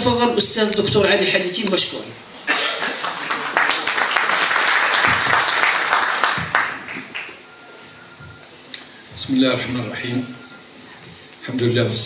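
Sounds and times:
audience applauding: 0:02.5 - 0:07.5.

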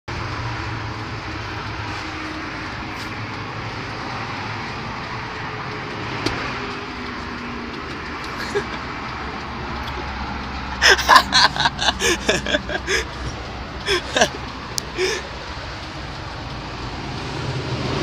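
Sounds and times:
road traffic: 0:00.1 - 0:18.0.

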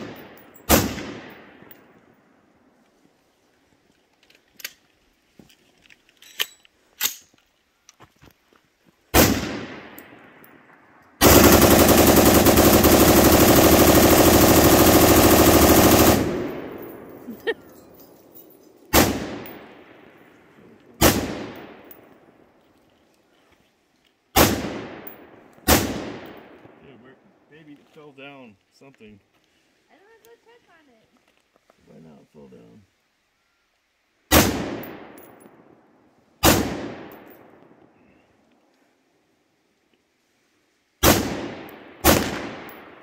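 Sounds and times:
gun shots: 0:00.0 - 0:01.7, 0:09.1 - 0:10.0, 0:18.9 - 0:19.9, 0:21.0 - 0:21.9, 0:24.4 - 0:26.5, 0:34.3 - 0:35.2, 0:36.4 - 0:37.3, 0:41.0 - 0:43.0
rapid automatic gunfire: 0:11.2 - 0:16.5.

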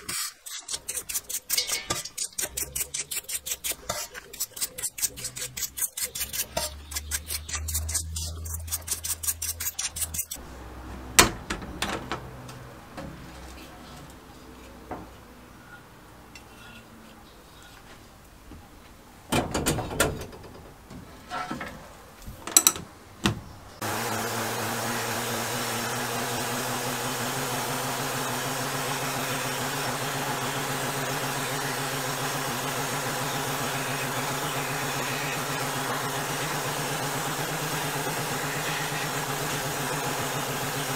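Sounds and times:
brush scrubbing engine part: 0:00.0 - 0:10.4, 0:23.8 - 0:40.9
knocks and clatter: 0:11.2 - 0:13.3, 0:19.3 - 0:21.8
sandblast cabinet hiss and hum: 0:23.8 - 0:40.9.

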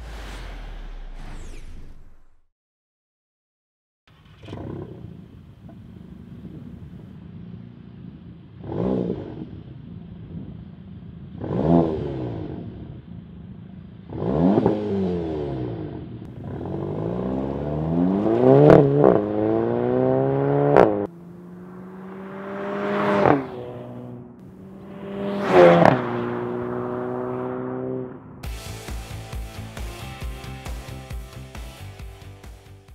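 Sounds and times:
car engine revving and accelerating: 0:00.0 - 0:02.1, 0:04.2 - 0:07.8, 0:08.6 - 0:09.7, 0:11.3 - 0:13.0, 0:14.0 - 0:30.1.

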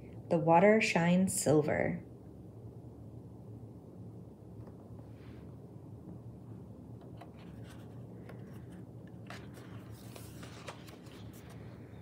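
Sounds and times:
faint low hum: 0:00.0 - 0:12.0
paper page rustling and crinkling: 0:07.0 - 0:12.0.

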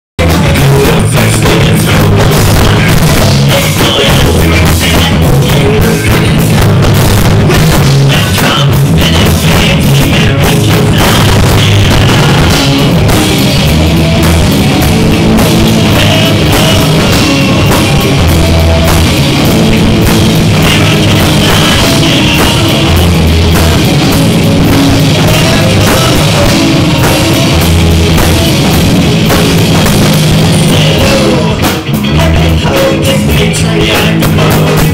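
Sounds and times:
electric guitars: 0:00.2 - 0:34.9
pounding drum kit: 0:00.2 - 0:34.9.

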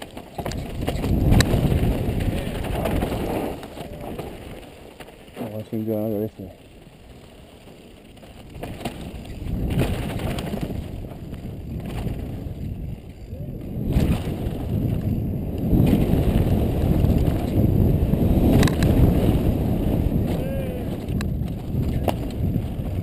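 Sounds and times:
wind rumbling on camera: 0:00.0 - 0:23.0
bike knocking over bumps: 0:08.2 - 0:12.8.

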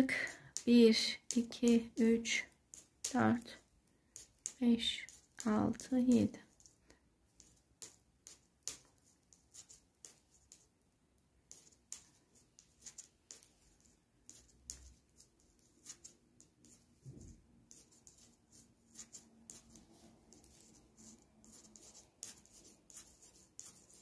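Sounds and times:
yarn rubbing: 0:11.5 - 0:24.0.

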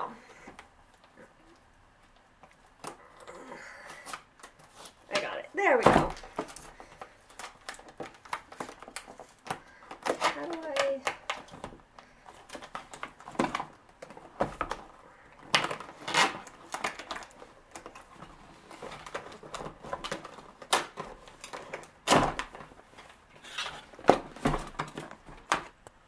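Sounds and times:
cardboard scraping and rustling: 0:15.5 - 0:25.8.

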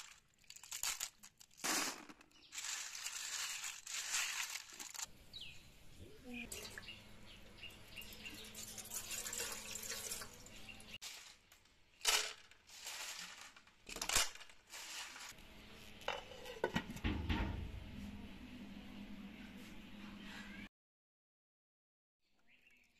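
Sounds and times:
water pouring and splashing: 0:08.4 - 0:11.3.

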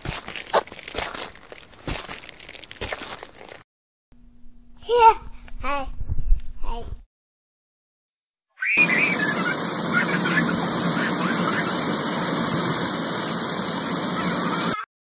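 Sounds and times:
faint children's voices: 0:08.6 - 0:12.0, 0:14.0 - 0:14.8.

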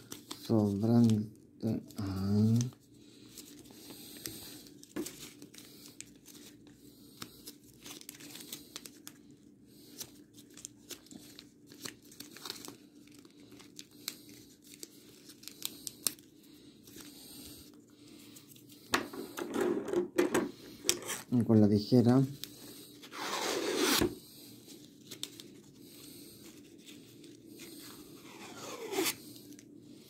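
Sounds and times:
plastic ribbon crinkling: 0:02.2 - 0:09.2, 0:09.9 - 0:17.8.

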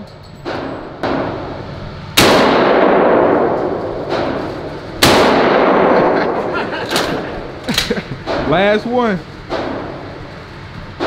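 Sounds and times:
weaker bangs: 0:00.4 - 0:07.6, 0:08.2 - 0:11.0
shotgun blasts with echo: 0:02.2 - 0:06.4.

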